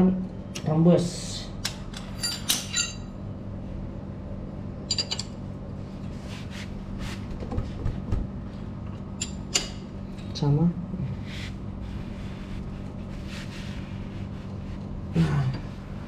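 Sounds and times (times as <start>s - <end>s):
steady low hum: 0.0s - 16.0s
metal hand tools clinking: 2.2s - 3.1s.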